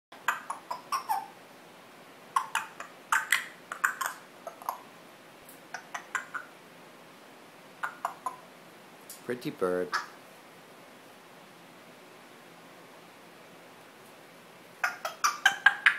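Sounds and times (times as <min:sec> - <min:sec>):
parrot clicking: 0:02.4 - 0:04.8.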